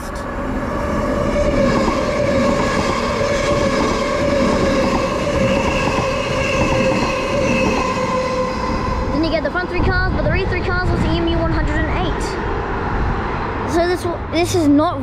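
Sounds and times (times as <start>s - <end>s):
electric train whine: 0.0s - 11.5s
wheel and rail rumble: 0.0s - 15.0s.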